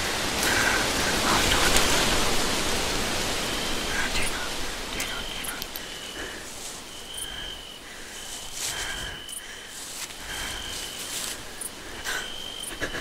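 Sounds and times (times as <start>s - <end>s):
crickets chirping: 0.0s - 13.0s
steady hiss: 0.0s - 13.0s
soft clicks: 5.0s - 6.0s.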